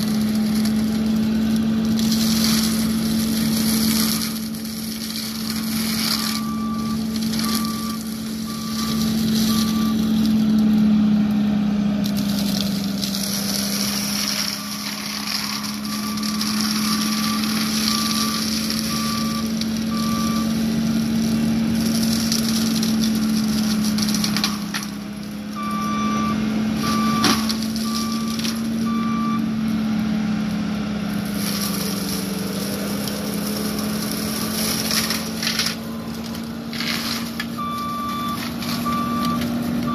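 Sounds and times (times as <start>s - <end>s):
wood cracking: 0.0s - 29.8s, 30.4s - 39.9s
mulcher chewing brush: 0.0s - 39.9s
track loader engine running: 0.0s - 39.9s
backup alarm beeping: 6.3s - 10.1s, 25.6s - 29.5s, 37.6s - 39.9s.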